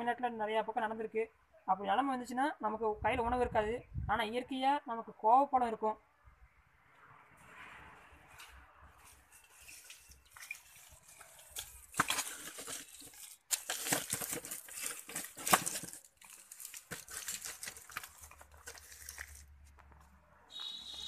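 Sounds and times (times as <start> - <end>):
leaves and twigs rustling: 8.3 - 21.0.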